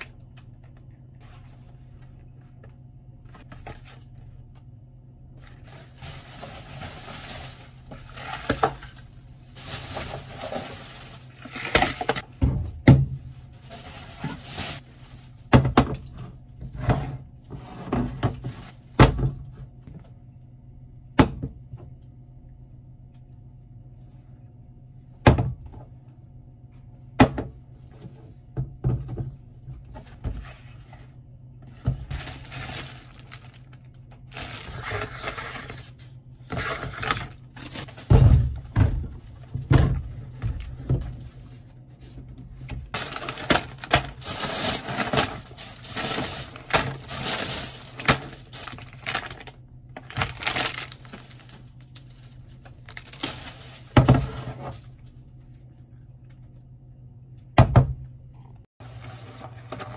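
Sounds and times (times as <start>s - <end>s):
grocery bags rustling: 5.4s - 12.3s, 13.1s - 16.1s, 31.6s - 55.1s.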